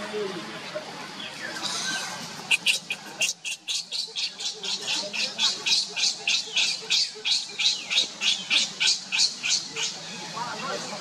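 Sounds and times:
baby monkey shrieking: 1.6s - 9.6s.

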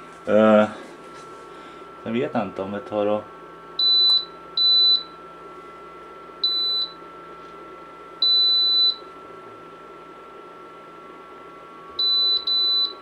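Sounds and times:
fan whirring: 0.0s - 13.0s
control panel beeps: 3.8s - 5.1s, 6.4s - 7.0s, 12.0s - 13.0s.

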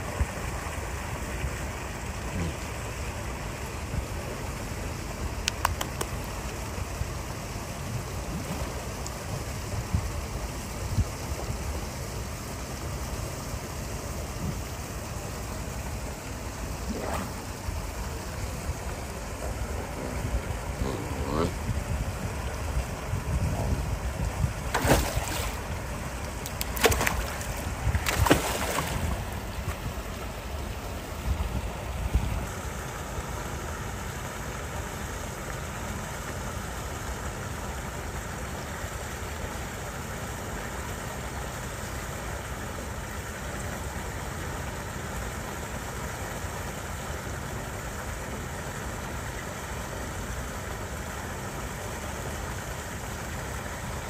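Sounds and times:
rushing water: 0.0s - 54.0s
wind rumbling on microphone: 7.9s - 11.7s, 19.6s - 30.1s, 31.2s - 32.5s
seals splashing in water: 16.2s - 21.6s, 24.6s - 30.9s.

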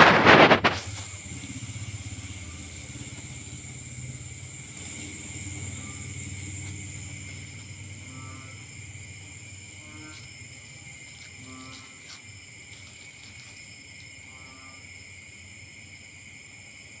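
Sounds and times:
faint low hum: 0.0s - 17.0s
night insects chorus: 0.0s - 17.0s.

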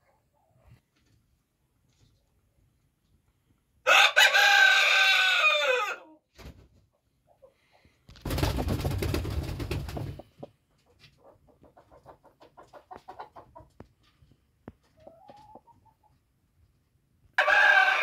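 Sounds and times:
hen clucking: 10.1s - 13.8s, 14.9s - 16.2s.

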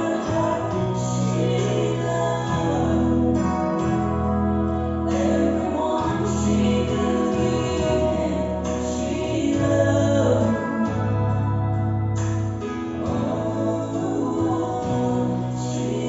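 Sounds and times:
woman singing gospel song: 0.0s - 4.1s, 5.1s - 11.2s, 13.0s - 16.0s
steady bass: 0.0s - 16.0s.

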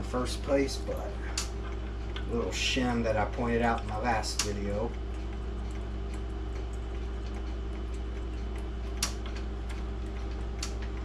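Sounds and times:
mechanical clocks ticking: 0.0s - 11.0s
steady low hum: 0.0s - 11.0s
clock movement click: 1.3s - 6.3s.

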